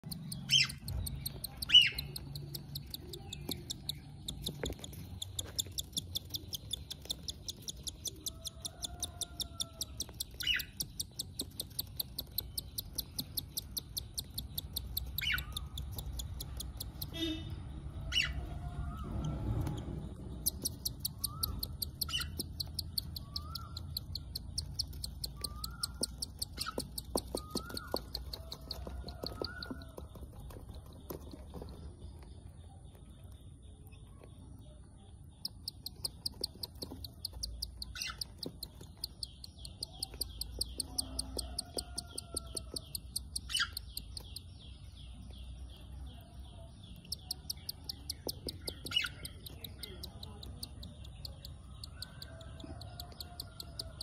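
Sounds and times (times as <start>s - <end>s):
sharp clicks: 0.0s - 17.2s
chick feeding squeaks: 0.0s - 32.8s, 34.0s - 44.8s, 47.0s - 54.0s.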